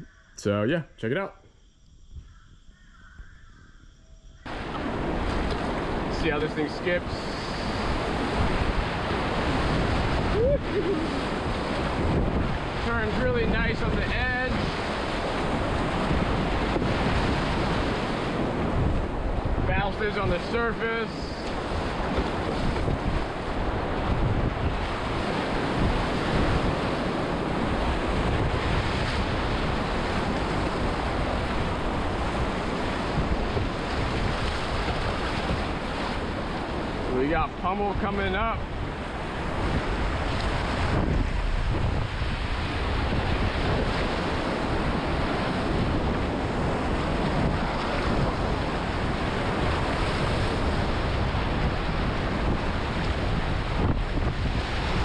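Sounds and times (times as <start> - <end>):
wind buffeting microphone: 2.0 - 55.0
whitewater rapids rushing and splashing: 4.5 - 18.4.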